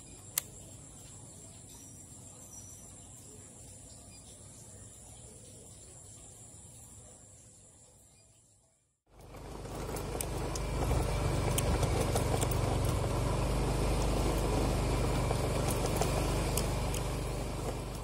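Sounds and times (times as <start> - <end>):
clicks and rattles on gravel: 9.1 - 18.0
scooter engine running: 9.1 - 18.0.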